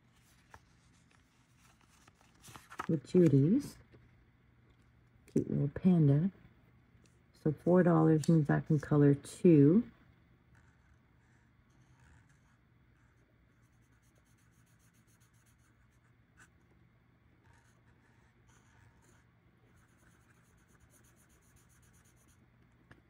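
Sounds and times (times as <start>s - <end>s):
marker scratching on paper: 10.6s - 16.5s, 17.4s - 22.4s.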